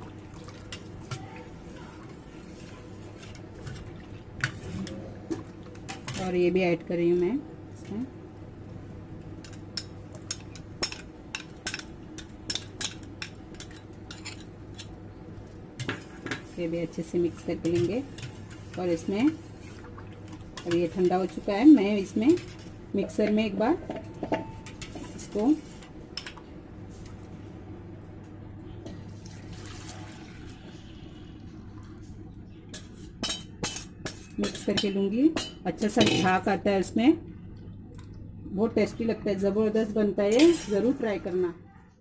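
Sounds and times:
liquid stirred and ladled: 0.0 - 6.2, 17.4 - 27.1, 28.8 - 36.6
low steady hum: 0.0 - 42.0
ladle clinking against bowl and pot: 22.3 - 25.1, 32.7 - 36.5
thick liquid pouring: 29.1 - 30.8.

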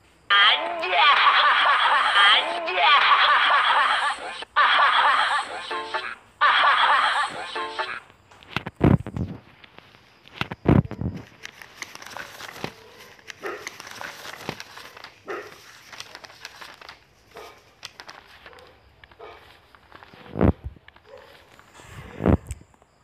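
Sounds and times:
rustling and crinkling: 8.3 - 22.9.

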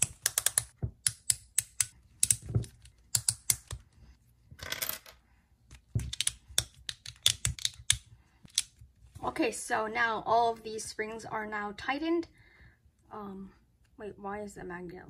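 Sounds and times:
plastic puzzle cube clicks: 0.0 - 3.8, 6.0 - 8.8.

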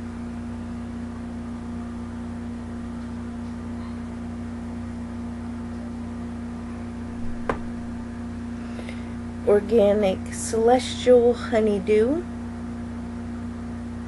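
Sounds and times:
steady hum: 0.0 - 14.0.

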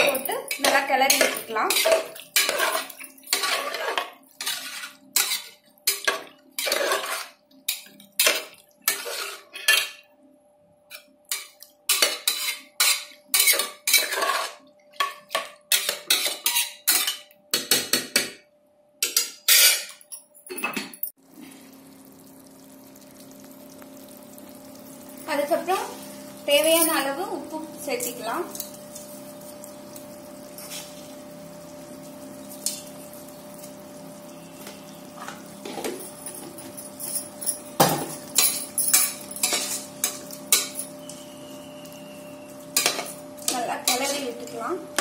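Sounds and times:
spoon scraping metal pot: 0.5 - 10.0, 10.9 - 17.2.

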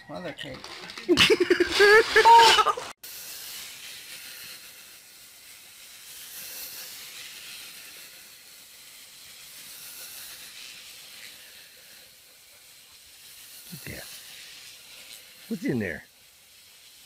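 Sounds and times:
steady background hiss: 0.4 - 17.0.

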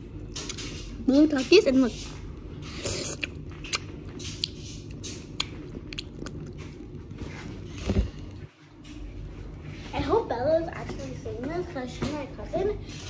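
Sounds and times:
chewing: 2.6 - 7.3.

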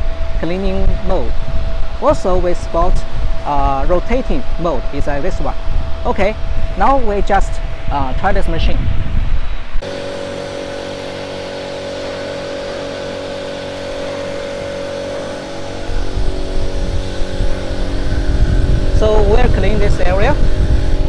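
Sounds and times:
laser cleaning machine humming: 9.8 - 21.0.

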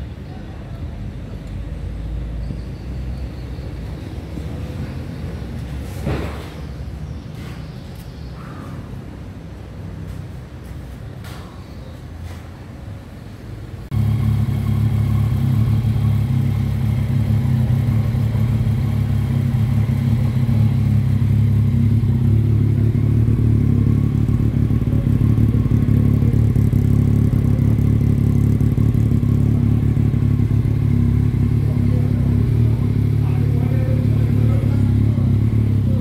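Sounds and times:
motorcycle engine idling: 13.9 - 36.0.

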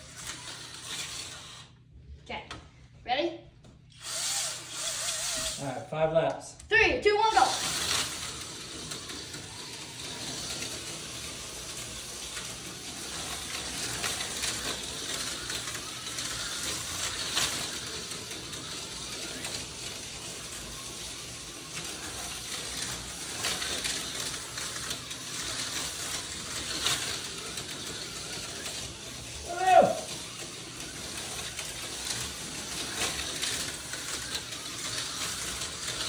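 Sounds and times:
slot cars whirring: 0.0 - 2.1, 3.9 - 5.9, 6.9 - 36.0.

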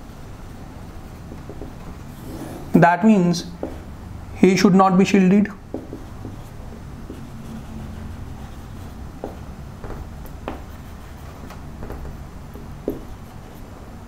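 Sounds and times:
low room hum: 0.0 - 14.0
marker writing on whiteboard: 1.2 - 2.8, 3.6 - 4.0, 5.6 - 13.8.

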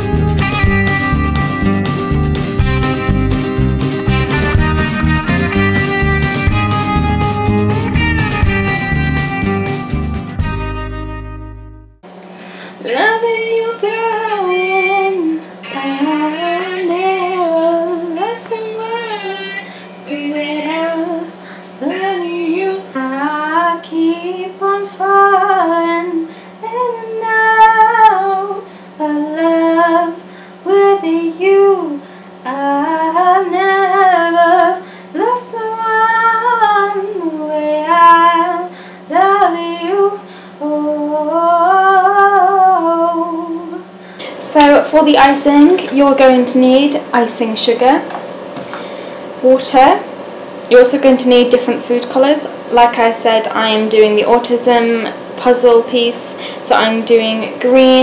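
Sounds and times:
woman singing: 12.8 - 48.0, 50.7 - 58.0.

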